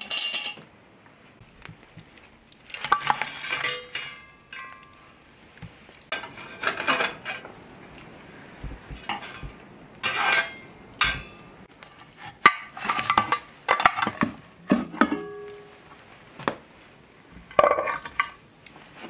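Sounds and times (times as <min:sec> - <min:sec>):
shovel scraping hot coals: 0:01.4 - 0:19.0
sharp metal clank: 0:10.1 - 0:11.4.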